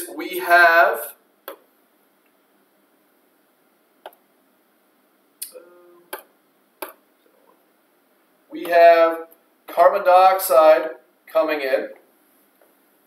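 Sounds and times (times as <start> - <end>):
person humming: 5.4 - 6.2.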